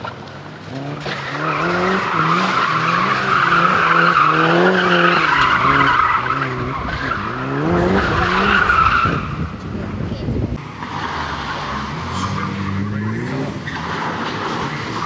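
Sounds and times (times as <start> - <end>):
car engine revving hard: 0.6 - 9.5, 10.6 - 15.0
tyres squealing: 0.7 - 9.6.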